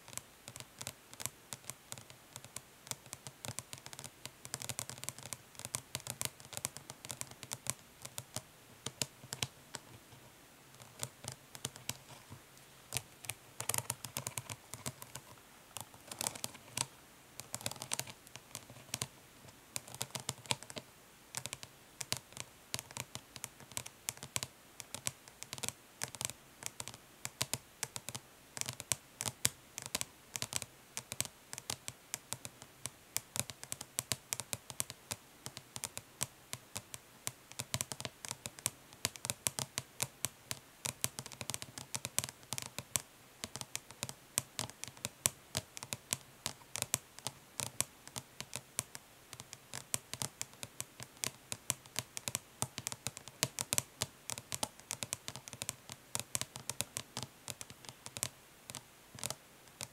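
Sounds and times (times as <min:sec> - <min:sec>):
light scratches: 0:07.0 - 0:19.1.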